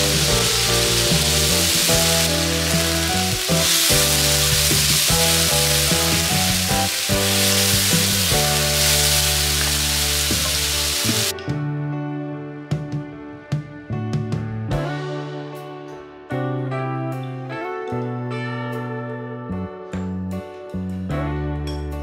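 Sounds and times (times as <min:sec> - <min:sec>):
meat sizzling in a wok: 0:00.0 - 0:11.3.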